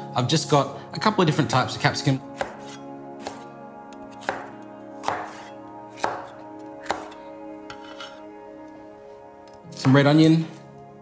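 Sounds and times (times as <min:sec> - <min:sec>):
cleaver chopping on wooden board: 0:02.4 - 0:03.5, 0:04.2 - 0:08.0.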